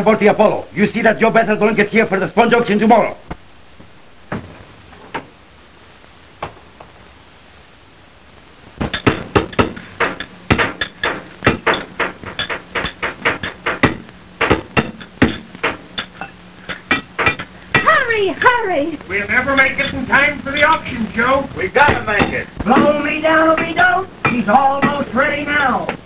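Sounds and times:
hammering on metal: 8.8 - 18.0, 21.8 - 26.0.

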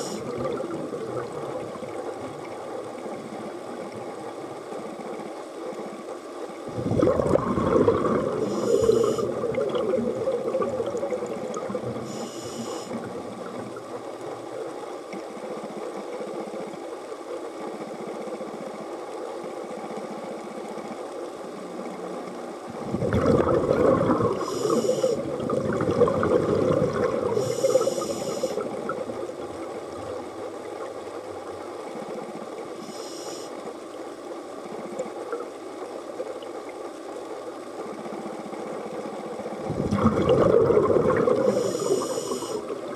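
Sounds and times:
diver's bubbles gurgling: 0.0 - 3.4, 6.7 - 14.5, 22.7 - 31.6, 39.6 - 42.9
steady underwater hiss: 0.0 - 42.9
regulator hissing: 8.4 - 9.4, 24.4 - 25.2, 27.4 - 28.6, 41.5 - 42.6.

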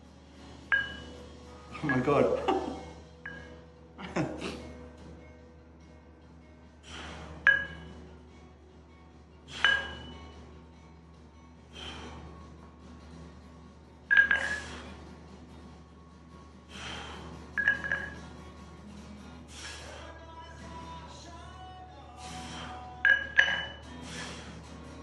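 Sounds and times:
dumbbells clinking: 0.7 - 3.7, 7.4 - 8.0, 9.5 - 10.4, 14.1 - 14.9, 17.6 - 18.4, 22.4 - 24.3
sharp breath out: 24.0 - 24.7.

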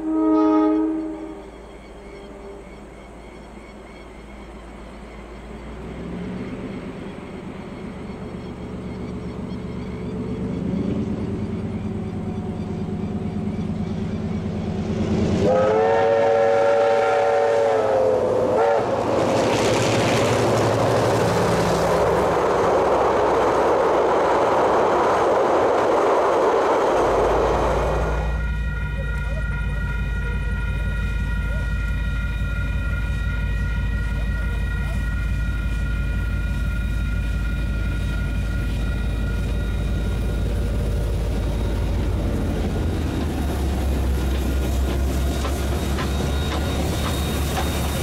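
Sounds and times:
train horn: 0.0 - 2.9, 15.3 - 19.3, 27.5 - 40.6
locomotive engine rumble: 0.0 - 48.0
train wheels rushing past: 0.0 - 48.0.

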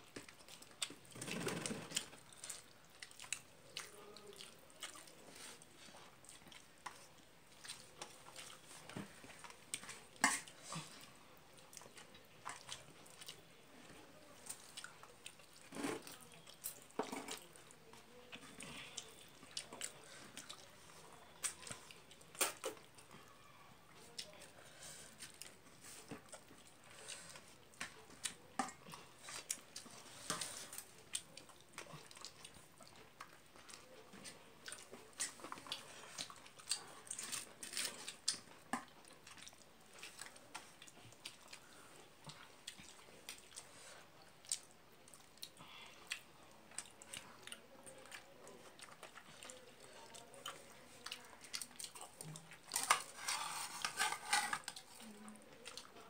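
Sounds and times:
person chewing food: 0.0 - 56.0.

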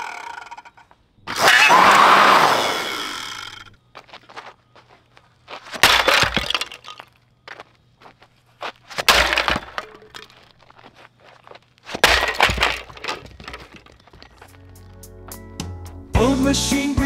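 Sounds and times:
dumbbell smashing plastic: 5.7 - 7.1, 9.0 - 10.4, 11.9 - 14.5
plastic fragments clattering: 5.8 - 7.1, 9.0 - 10.6, 11.9 - 14.6.

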